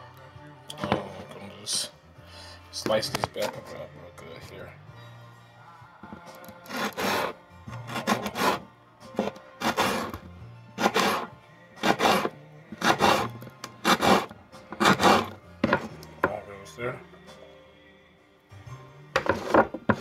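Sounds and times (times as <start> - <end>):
knife slicing pepper on board: 6.7 - 8.6, 10.8 - 15.9.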